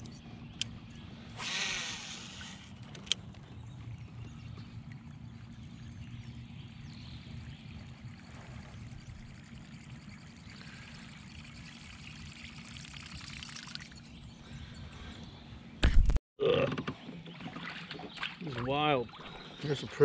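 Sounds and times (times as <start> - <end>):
water lapping against kayak: 17.0 - 20.0.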